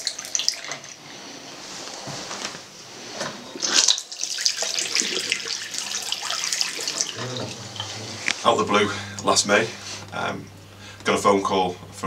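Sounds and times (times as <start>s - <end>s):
tap water running into basin: 0.0s - 1.1s, 3.6s - 8.4s.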